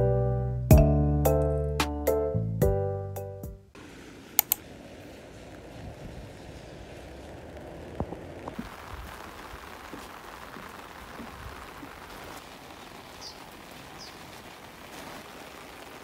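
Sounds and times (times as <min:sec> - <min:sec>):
light rain falling: 0:03.7 - 0:16.0.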